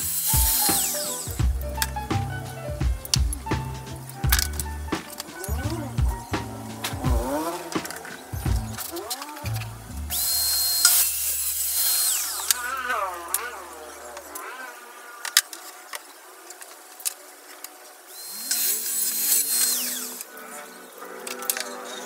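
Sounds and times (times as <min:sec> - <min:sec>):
power tool spinning up: 0:00.0 - 0:01.4, 0:06.8 - 0:15.8, 0:18.1 - 0:20.4
circular saw whining: 0:00.0 - 0:22.0.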